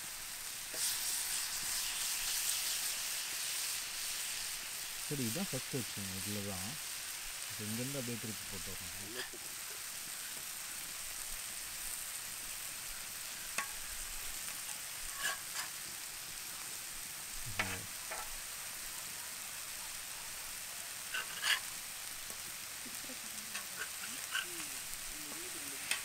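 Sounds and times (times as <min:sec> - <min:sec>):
chicken sizzling on griddle: 0:00.0 - 0:26.0.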